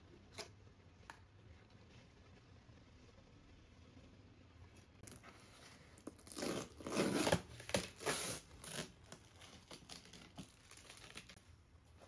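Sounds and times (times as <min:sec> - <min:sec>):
cardboard box rustling and tearing: 0:06.2 - 0:11.4.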